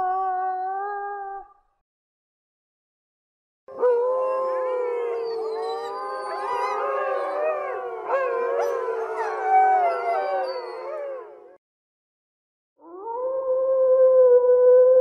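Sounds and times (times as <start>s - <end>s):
wolves howling in chorus: 3.7s - 11.6s.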